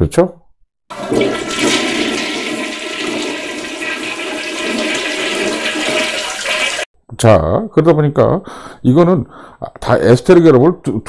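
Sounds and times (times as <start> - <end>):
rushing swirling water: 0.9 - 6.9.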